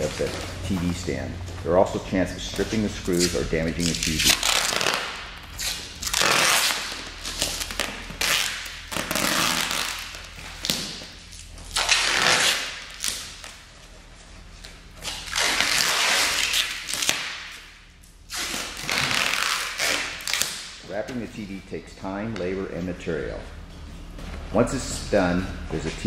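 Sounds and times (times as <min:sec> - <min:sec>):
packing tape pulled off roll: 0:02.6 - 0:13.6, 0:15.0 - 0:17.7, 0:18.3 - 0:20.8.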